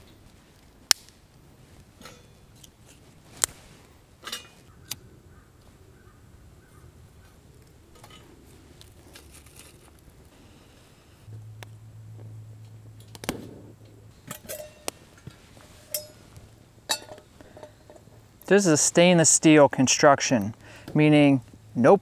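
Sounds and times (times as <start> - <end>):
crackling twig fire: 0.0 - 19.3
low steady hum: 0.0 - 22.0
metal pot clinking on stove: 14.3 - 14.9, 15.9 - 16.2, 16.9 - 18.0.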